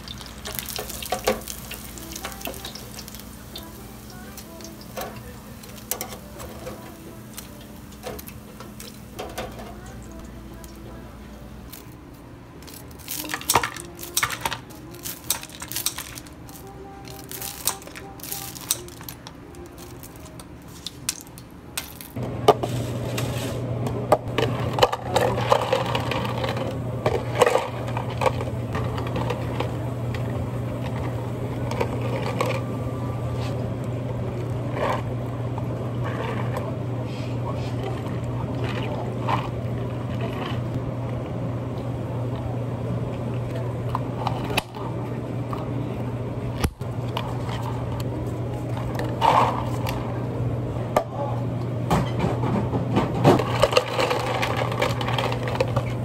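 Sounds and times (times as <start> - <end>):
ice cubes clinking into cups: 0.0 - 10.2, 12.6 - 22.2, 24.3 - 29.8, 53.4 - 56.0
low steady hum: 0.0 - 56.0.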